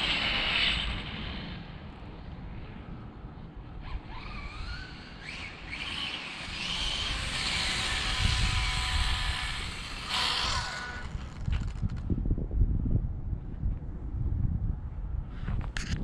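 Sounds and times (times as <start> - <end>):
wind buffeting microphone: 0.0 - 16.0
electric motor whine: 3.9 - 12.0.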